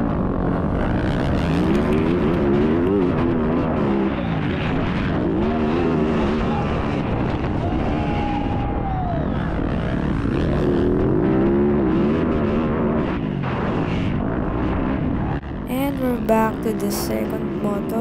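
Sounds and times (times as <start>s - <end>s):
dirt bike engine revving: 0.3s - 7.5s.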